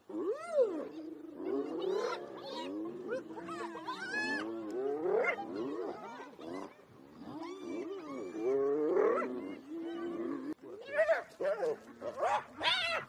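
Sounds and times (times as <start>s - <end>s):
wild animal wavering cries: 0.1s - 10.6s.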